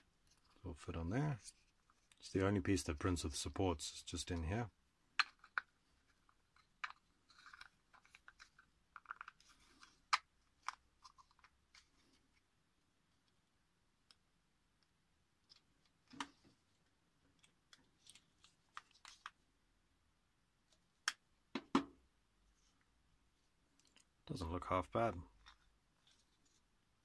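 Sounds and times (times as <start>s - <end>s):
plastic parts clicking: 5.2s - 11.6s.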